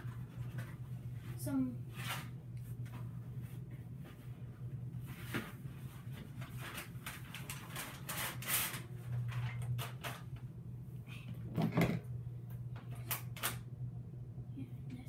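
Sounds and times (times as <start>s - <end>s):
paper rustling and crinkling: 5.0s - 10.3s.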